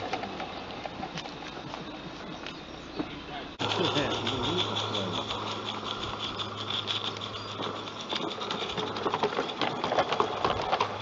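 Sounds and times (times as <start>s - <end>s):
low hum: 0.0s - 11.0s
wagons rattling: 0.0s - 11.0s
model train wheels clicking: 3.6s - 11.0s.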